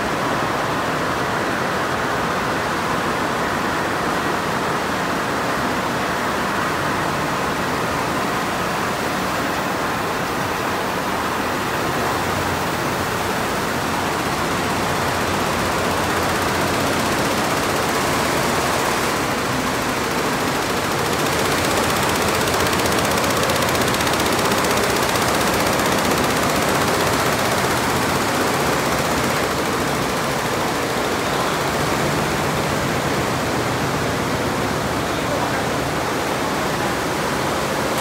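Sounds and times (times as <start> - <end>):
embroidery machines running: 8.7 - 38.0.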